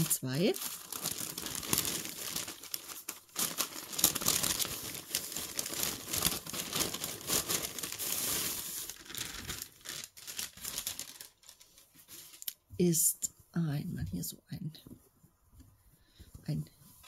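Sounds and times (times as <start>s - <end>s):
paper bag tearing and crinkling: 0.0s - 12.4s.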